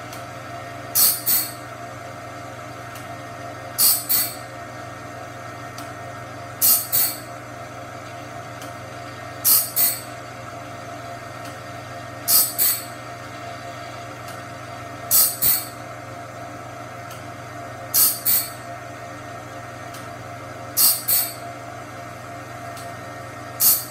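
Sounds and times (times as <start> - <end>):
sharpener motor hum: 1.0 - 1.6, 3.8 - 4.5, 6.6 - 7.3, 9.4 - 10.1, 12.3 - 13.0, 15.1 - 15.8, 17.9 - 18.6, 20.8 - 21.4, 23.6 - 23.9.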